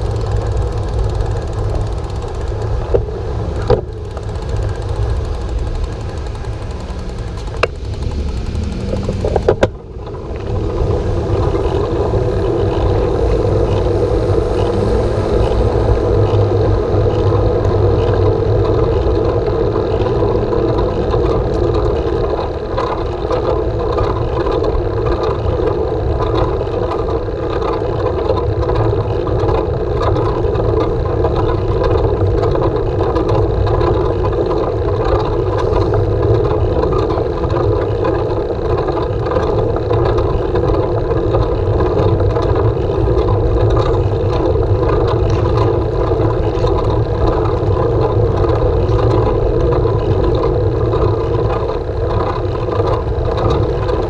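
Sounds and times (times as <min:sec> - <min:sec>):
sharp clicks: 0:00.0 - 0:10.2
bicycle tyres rolling on asphalt: 0:00.0 - 0:54.0
wind on microphone: 0:00.0 - 0:54.0.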